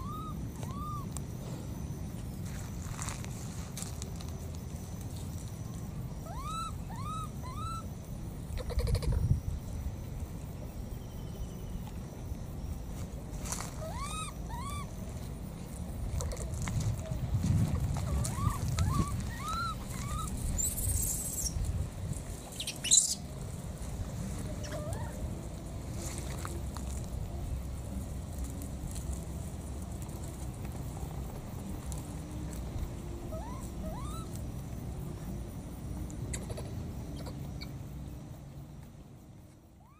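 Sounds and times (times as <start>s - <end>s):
short chirping calls: 0.0s - 1.2s, 6.2s - 7.9s, 13.7s - 15.0s, 18.0s - 21.6s, 22.4s - 23.3s, 33.3s - 34.4s
steady low rumble: 14.3s - 39.4s.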